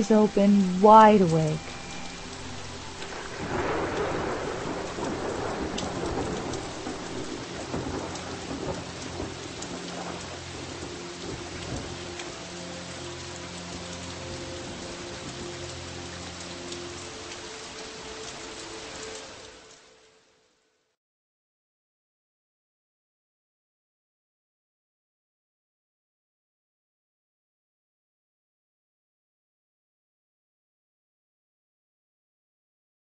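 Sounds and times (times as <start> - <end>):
steady rain falling: 0.0 - 21.0
thunder rolling: 2.6 - 12.1.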